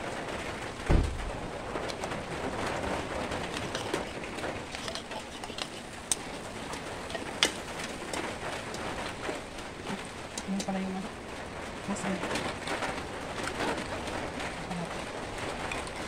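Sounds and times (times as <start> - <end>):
dull bump: 0.9 - 1.4
sauce simmering in a pot: 1.6 - 16.0.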